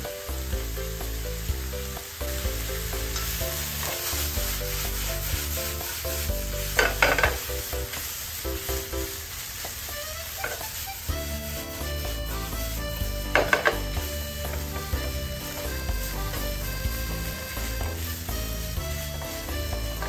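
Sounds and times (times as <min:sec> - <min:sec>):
background music: 0:00.0 - 0:20.0
food sizzling in a frying pan: 0:00.0 - 0:20.0
plastic spatula scraping pan: 0:03.1 - 0:08.0, 0:13.0 - 0:18.8.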